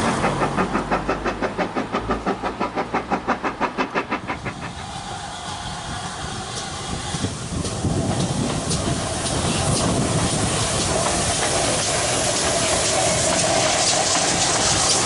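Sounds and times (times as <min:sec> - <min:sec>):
steam locomotive approaching: 0:00.0 - 0:15.0.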